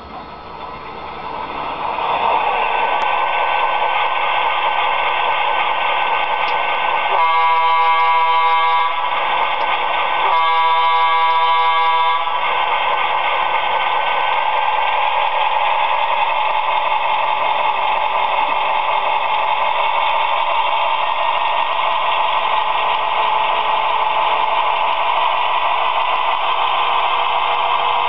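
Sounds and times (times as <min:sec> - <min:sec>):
model diesel engine sound: 0:00.0 - 0:28.0
multi-chime air horn blasts: 0:07.1 - 0:09.0, 0:10.2 - 0:12.4.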